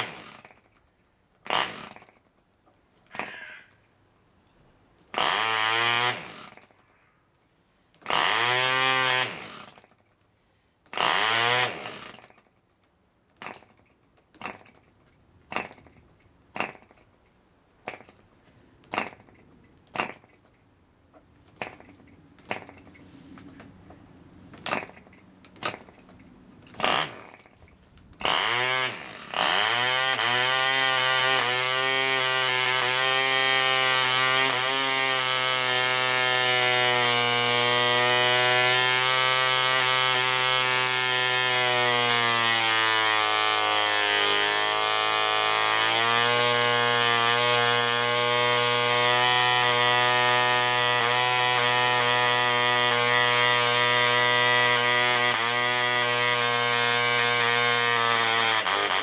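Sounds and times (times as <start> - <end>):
model engine buzzing at high speed: 51.8 - 59.0.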